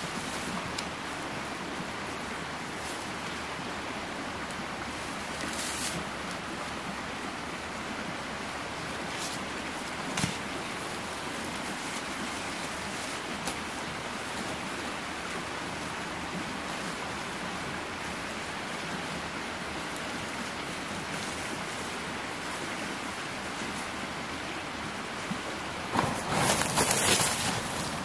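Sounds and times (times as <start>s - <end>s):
running water rushing: 0.0s - 28.0s.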